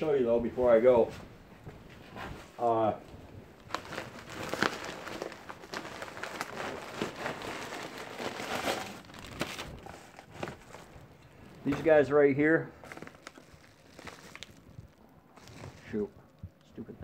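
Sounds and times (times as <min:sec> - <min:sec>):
packaging crinkling: 0:03.6 - 0:12.0, 0:12.8 - 0:16.7.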